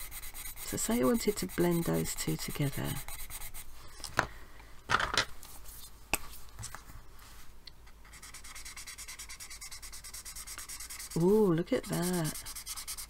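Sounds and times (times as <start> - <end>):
blender scratchy rubbing on paper: 0.0 - 3.6, 8.1 - 13.0.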